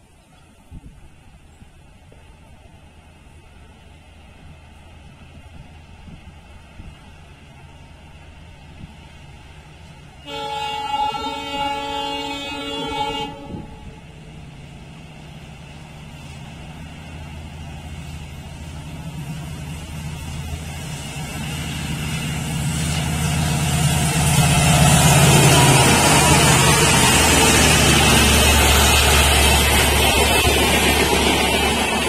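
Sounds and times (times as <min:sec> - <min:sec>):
train engine rumble: 0:00.0 - 0:32.0
locomotive horn chord: 0:10.2 - 0:14.0.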